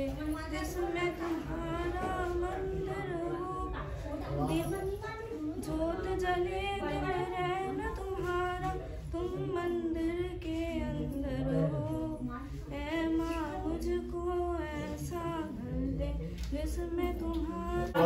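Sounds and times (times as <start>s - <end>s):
woman singing unaccompanied: 0.0s - 18.0s.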